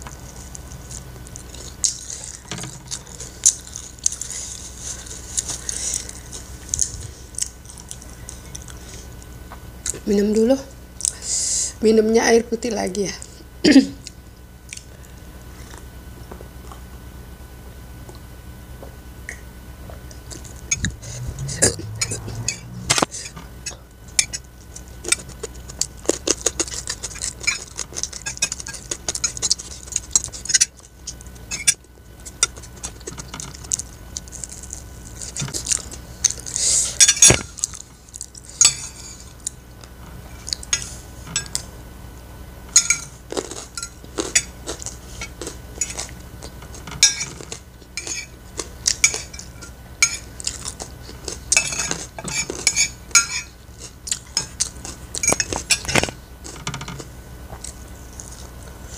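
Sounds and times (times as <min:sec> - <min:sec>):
cutlery scraping ceramic plate: 0:51.6 - 0:53.5.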